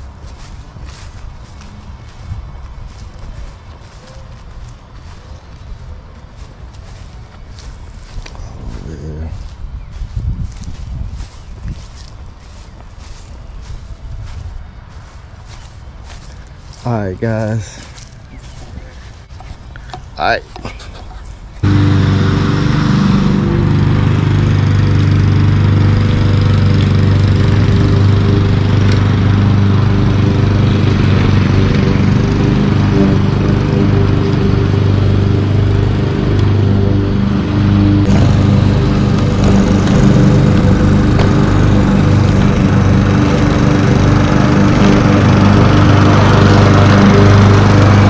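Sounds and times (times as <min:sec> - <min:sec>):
lawn mower engine: 0:00.0 - 0:02.2, 0:21.6 - 0:48.0.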